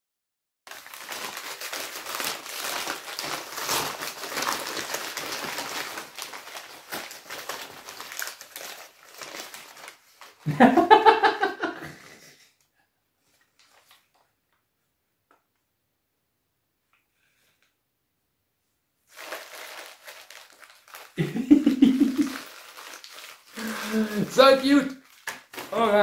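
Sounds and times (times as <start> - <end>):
wrapping paper crinkling: 0.7 - 11.4, 13.2 - 14.3, 19.1 - 26.0
person speaking: 21.2 - 22.4, 23.6 - 25.0, 25.6 - 26.0.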